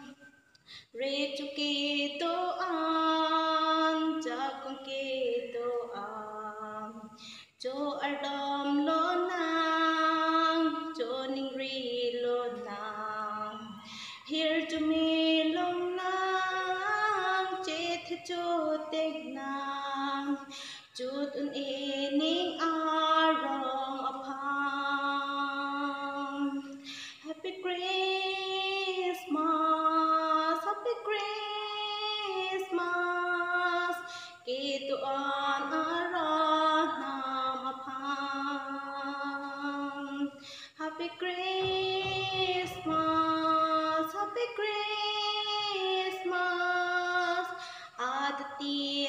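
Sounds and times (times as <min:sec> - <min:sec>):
woman singing unaccompanied: 0:00.0 - 0:49.0
singer breathing: 0:00.6 - 0:01.0, 0:13.9 - 0:14.3, 0:20.5 - 0:20.9, 0:26.8 - 0:27.2, 0:40.4 - 0:40.8, 0:47.6 - 0:48.0.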